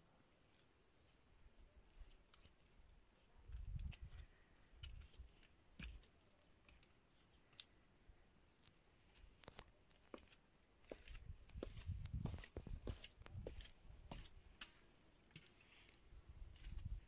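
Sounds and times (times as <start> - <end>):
soft footstep thumps: 10.9 - 14.8.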